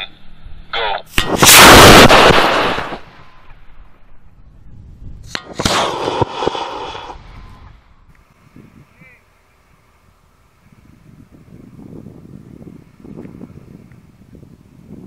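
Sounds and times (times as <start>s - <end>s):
sharp crack: 1.0s - 3.6s, 5.2s - 7.2s
rocket motor blast: 1.1s - 3.3s, 5.2s - 7.4s.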